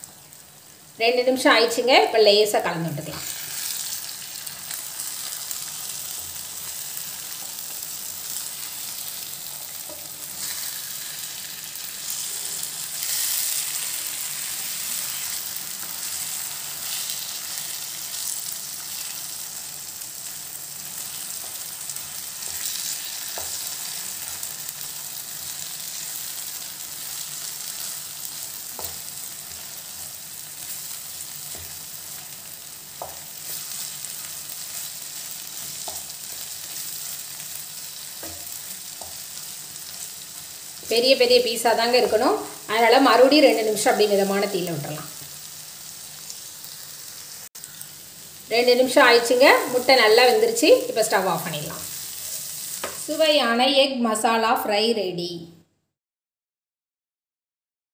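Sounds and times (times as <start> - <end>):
eggs sizzling in a pan: 0.0 - 53.8.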